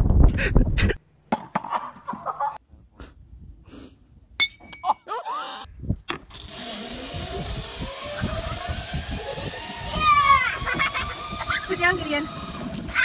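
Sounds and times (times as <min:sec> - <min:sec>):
zipline trolley on steel cable: 0:06.3 - 0:13.0.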